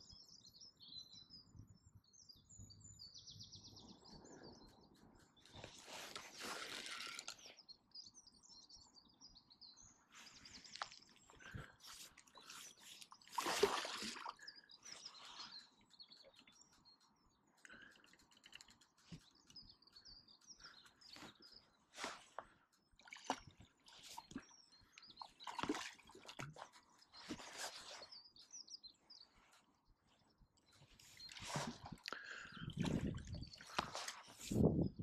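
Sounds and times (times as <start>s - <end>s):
small birds chirping: 0.0s - 35.0s
fishing rod rustles and knocks: 5.5s - 7.6s, 10.5s - 13.3s, 32.8s - 34.9s.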